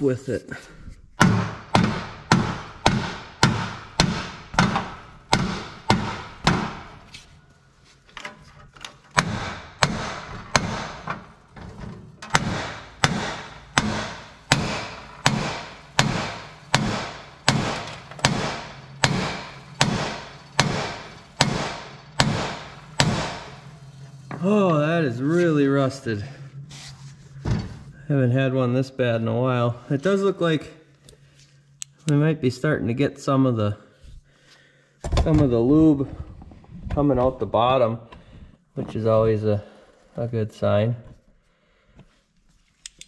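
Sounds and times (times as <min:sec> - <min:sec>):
hammer pounding metal spindle: 0:01.2 - 0:07.1, 0:09.1 - 0:24.5.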